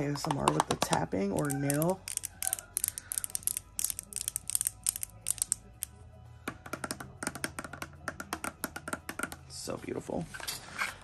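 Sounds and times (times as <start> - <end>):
nails tapping on cardboard box: 6.5 - 9.4.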